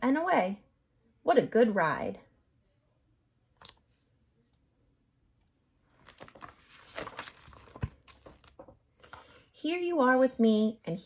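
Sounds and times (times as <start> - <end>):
book pages turning: 3.6 - 3.9, 5.8 - 9.5.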